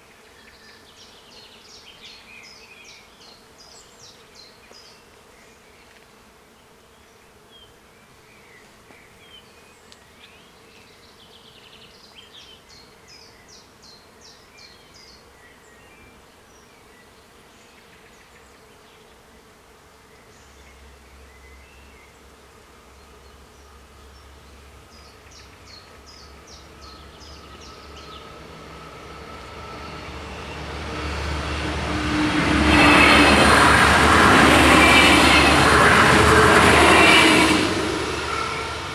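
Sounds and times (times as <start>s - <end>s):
train rumbling past: 26.3s - 38.9s.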